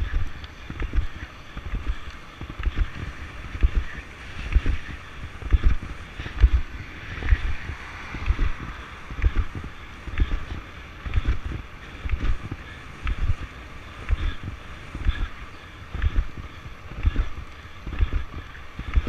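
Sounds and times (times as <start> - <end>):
longboard wheels rolling on road: 0.0 - 19.0
wind buffeting microphone: 0.0 - 19.0.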